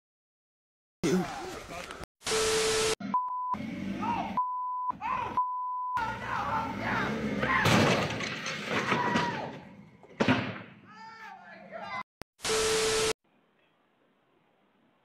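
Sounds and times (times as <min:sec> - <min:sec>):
censor beeps: 0:02.3 - 0:03.6, 0:04.4 - 0:06.0
raised voices: 0:03.9 - 0:07.8
wooden shed crashing to ground: 0:07.4 - 0:10.8.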